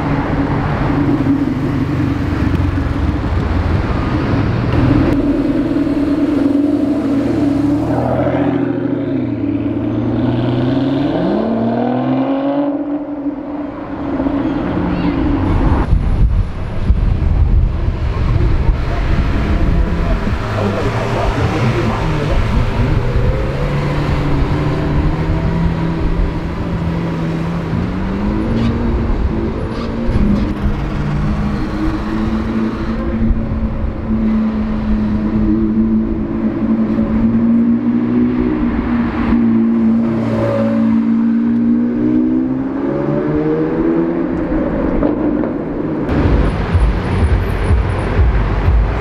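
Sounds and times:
supercar engine revving: 0:00.0 - 0:15.9.

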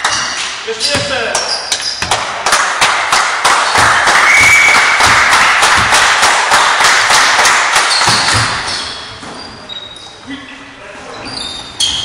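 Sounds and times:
people clapping hands: 0:00.0 - 0:00.6, 0:01.3 - 0:08.7.

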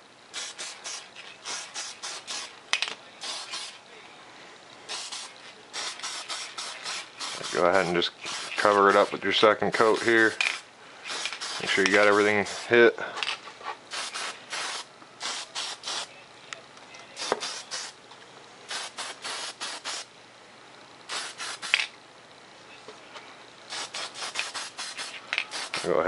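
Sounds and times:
spray can hissing bursts: 0:00.3 - 0:03.8, 0:04.9 - 0:09.2, 0:09.8 - 0:12.7, 0:13.9 - 0:16.1, 0:17.2 - 0:18.0, 0:18.7 - 0:20.1, 0:21.1 - 0:21.9, 0:23.7 - 0:26.0.

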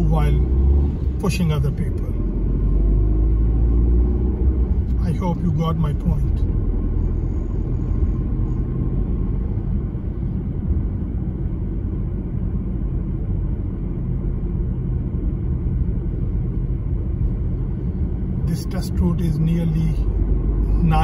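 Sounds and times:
car engine and tyres rumbling: 0:00.0 - 0:21.0.

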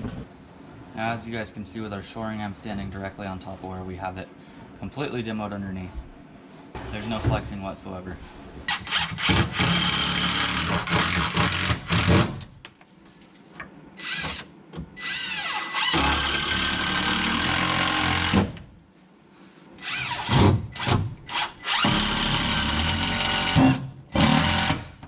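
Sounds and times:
cordless drill driving screws: 0:14.0 - 0:18.4, 0:19.8 - 0:24.9.

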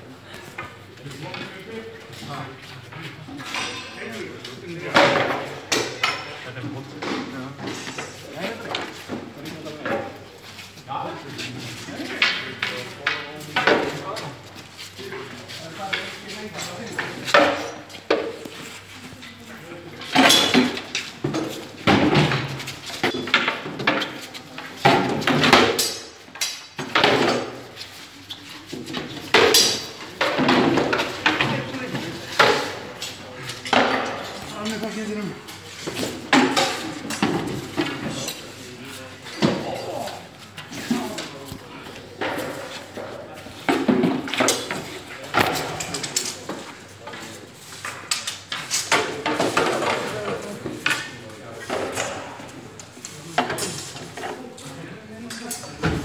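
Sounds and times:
wooden swords knocking shields: 0:28.8 - 0:32.8, 0:35.9 - 0:38.2.

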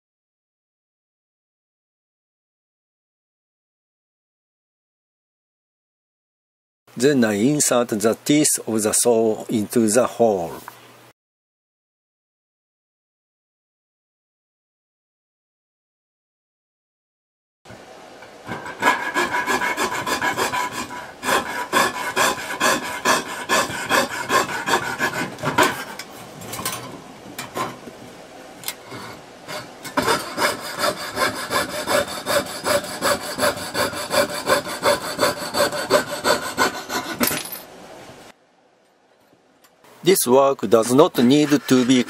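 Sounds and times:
piercing saw cutting metal sheet: 0:18.5 - 0:26.0, 0:28.9 - 0:37.4, 0:40.9 - 0:42.0.

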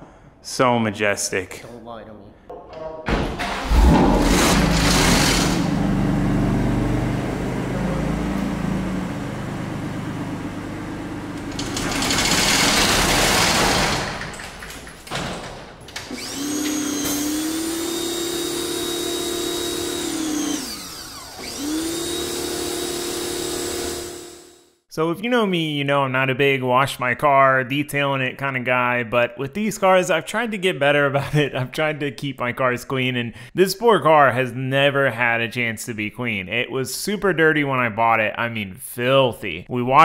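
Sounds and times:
pressure washer motor whine: 0:04.2 - 0:13.9, 0:16.1 - 0:24.7.

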